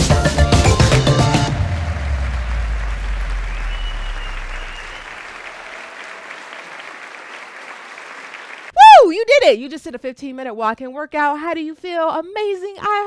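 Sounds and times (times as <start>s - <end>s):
crowd applause: 0.7s - 8.7s.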